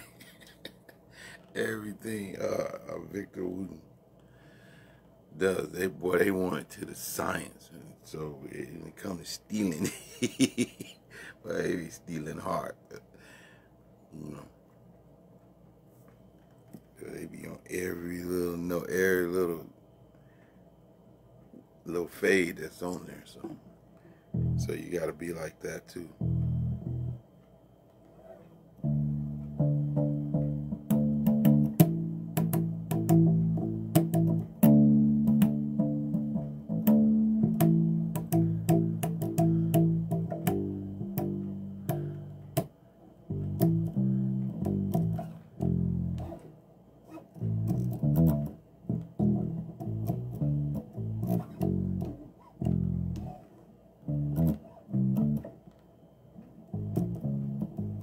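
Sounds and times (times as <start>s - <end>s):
bass guitar plucked notes: 24.3s - 25.1s, 26.0s - 27.3s, 28.8s - 42.7s, 43.3s - 46.5s, 47.2s - 53.4s, 54.0s - 55.6s, 56.7s - 58.0s
string clicks: 26.2s - 42.7s, 47.1s - 53.4s, 54.1s - 55.9s.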